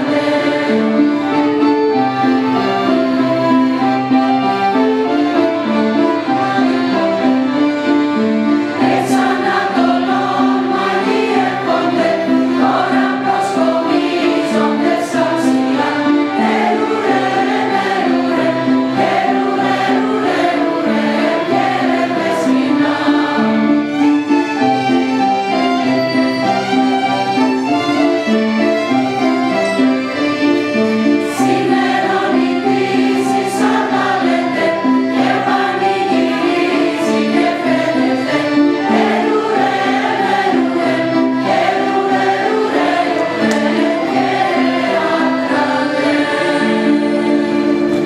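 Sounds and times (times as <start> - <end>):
choir singing in unison: 0.0 - 1.5, 5.4 - 24.6, 31.2 - 48.0
instrumental accompaniment: 0.0 - 48.0.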